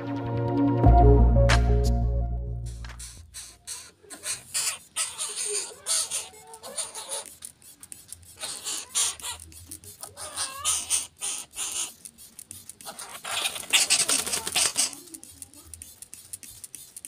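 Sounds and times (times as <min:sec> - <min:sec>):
wet wings fluttering: 0:12.5 - 0:17.0.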